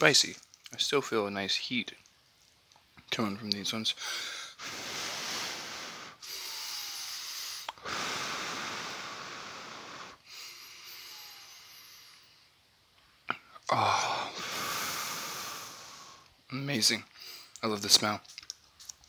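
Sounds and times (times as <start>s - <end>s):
person breathing heavily: 4.0s - 12.5s, 13.7s - 16.3s.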